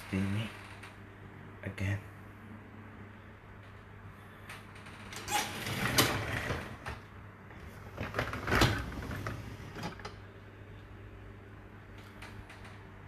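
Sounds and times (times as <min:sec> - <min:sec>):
dishwasher racks rattling: 0:05.2 - 0:07.0, 0:07.6 - 0:10.1.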